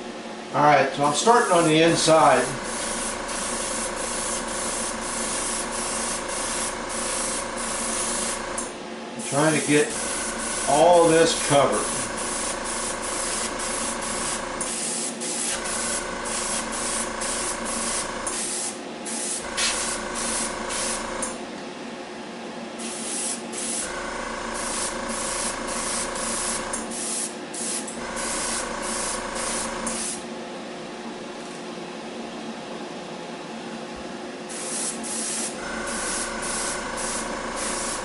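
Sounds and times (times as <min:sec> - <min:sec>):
airbrush spraying hiss: 0:01.6 - 0:08.6, 0:09.4 - 0:21.3, 0:22.8 - 0:23.9, 0:24.5 - 0:30.2, 0:34.5 - 0:38.0
small motor humming: 0:01.9 - 0:08.7, 0:09.9 - 0:14.7, 0:15.4 - 0:18.4, 0:19.4 - 0:21.4, 0:23.8 - 0:26.9, 0:27.9 - 0:30.0, 0:35.5 - 0:38.0.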